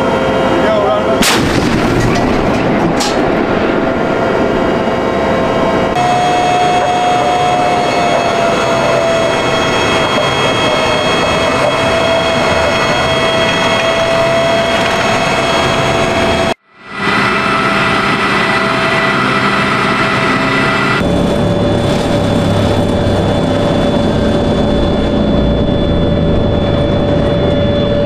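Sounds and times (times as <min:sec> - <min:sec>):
turbine engine whine: 0:00.0 - 0:28.0
tank gun firing: 0:01.2 - 0:03.8.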